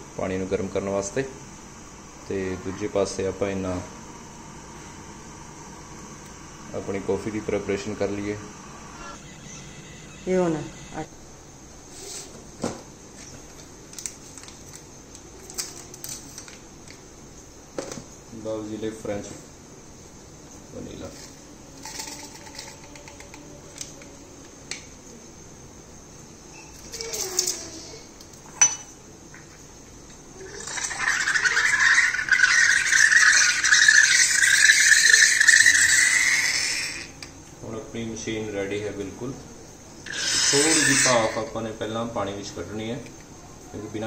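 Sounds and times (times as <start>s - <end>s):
coffee maker steam hissing: 0.0s - 14.0s, 29.0s - 44.0s
steady low hum: 0.0s - 15.3s.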